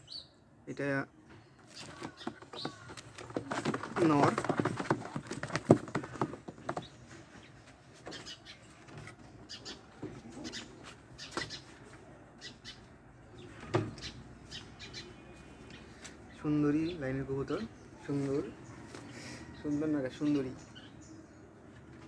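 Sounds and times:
pigeons calling: 1.4s - 22.0s
cage rattles and rustles: 1.7s - 7.2s.

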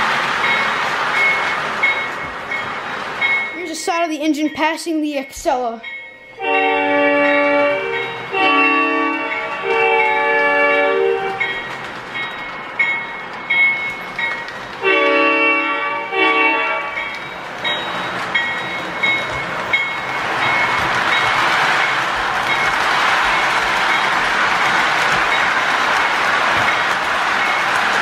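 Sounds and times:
model train engine and rolling: 0.0s - 28.0s
model train diesel horn: 6.4s - 11.4s, 14.8s - 17.0s.

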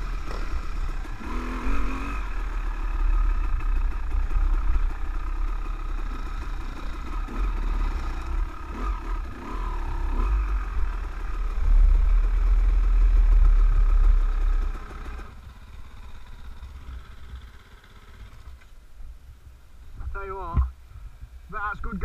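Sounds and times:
motorcycle engine rumbling: 0.0s - 22.0s.

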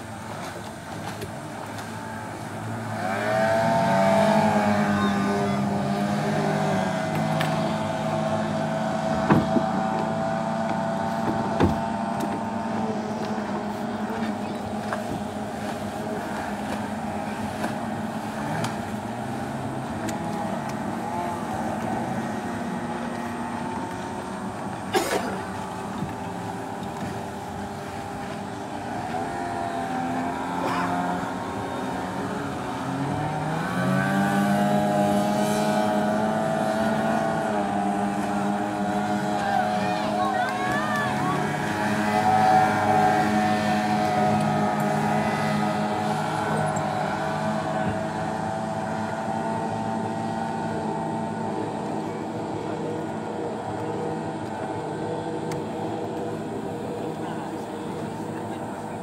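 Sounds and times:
outboard motors running at speed: 0.0s - 59.0s.

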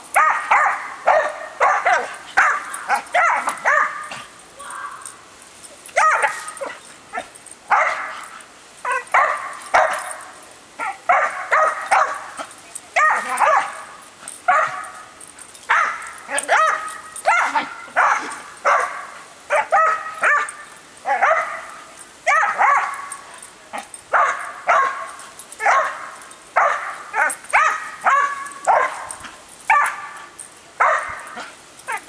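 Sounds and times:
hose water spray: 0.0s - 32.0s
dog barking: 0.2s - 4.2s, 6.0s - 6.8s, 7.7s - 8.3s, 8.9s - 10.2s, 10.8s - 12.4s, 13.0s - 13.8s, 14.5s - 15.0s, 15.7s - 23.1s, 24.1s - 29.1s, 29.7s - 30.2s, 30.8s - 32.0s.

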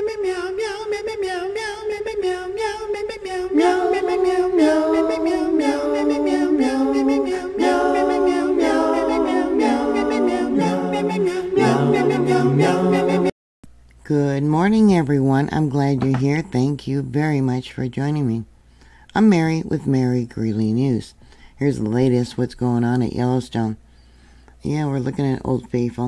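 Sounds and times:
a cappella choir singing: 0.0s - 13.3s.

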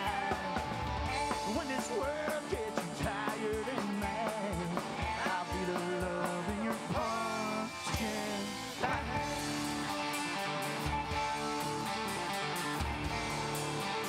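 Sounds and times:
man singing: 0.0s - 10.0s
live rock band playing: 0.0s - 14.0s.

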